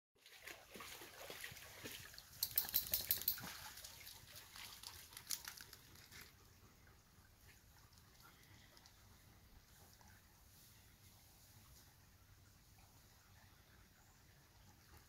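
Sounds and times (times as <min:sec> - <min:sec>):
leaves and twigs crackling underfoot: 0:02.6 - 0:06.4.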